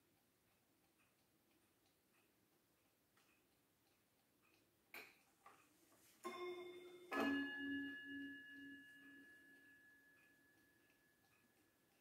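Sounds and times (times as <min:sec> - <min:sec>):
clock striking gong: 0:06.2 - 0:09.9.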